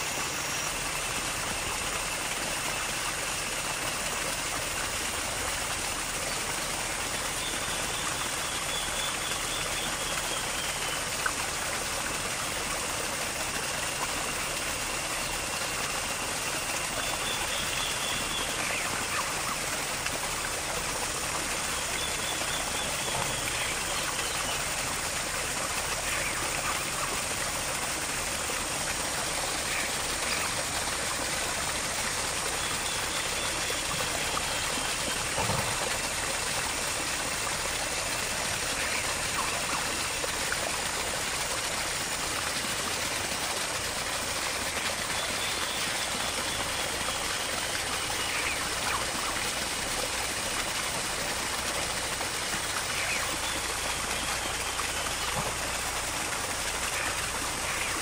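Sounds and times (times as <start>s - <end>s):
running water hissing: 0.0s - 58.0s.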